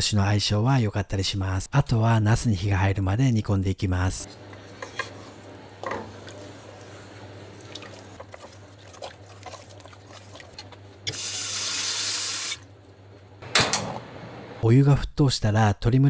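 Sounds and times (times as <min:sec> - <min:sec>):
steady low hum: 0:04.2 - 0:11.1.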